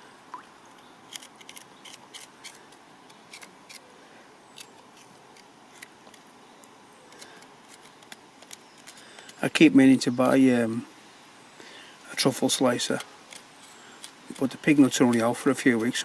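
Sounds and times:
knife scraping root skin: 1.0s - 3.9s, 4.5s - 6.2s, 12.8s - 16.0s.

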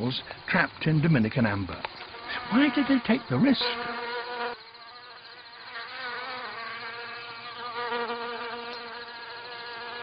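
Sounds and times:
bees buzzing in flight: 2.1s - 10.0s.

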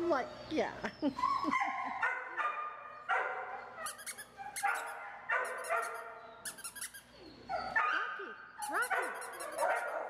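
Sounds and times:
dogs barking: 1.3s - 6.3s, 7.4s - 10.0s.

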